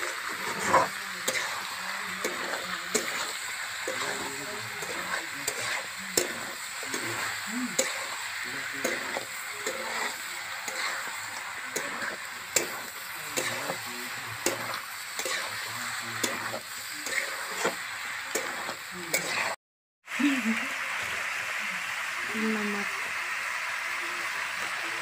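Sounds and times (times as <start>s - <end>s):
metal spatula scraping a pan: 0.0s - 19.6s
chicken sizzling in oil: 0.0s - 25.0s.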